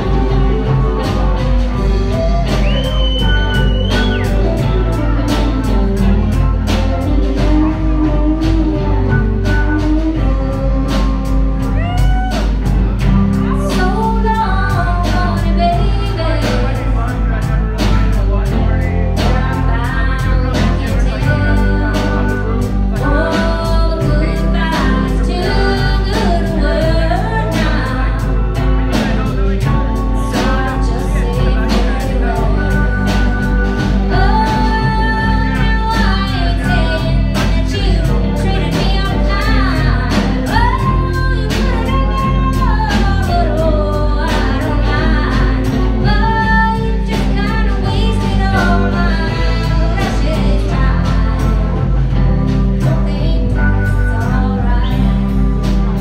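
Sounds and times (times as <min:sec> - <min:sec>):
electric guitars: 0:00.0 - 0:56.0
keyboard: 0:00.0 - 0:56.0
steady drum beat: 0:00.0 - 0:56.0.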